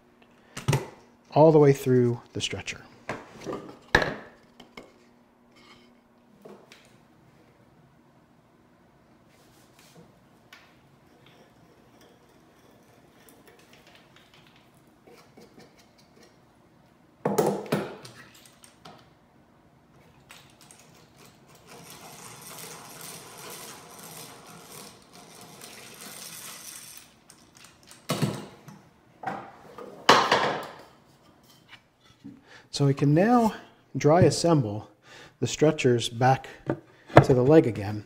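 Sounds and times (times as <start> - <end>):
hand drill rasping grind: 21.6 - 27.1.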